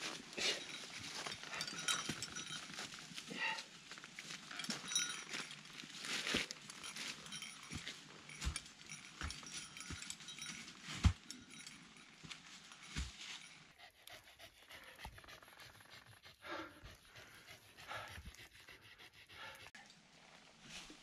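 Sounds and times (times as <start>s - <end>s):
steps on rocks and leaves: 0.0s - 13.5s
dog panting: 0.5s - 2.5s, 13.7s - 19.8s.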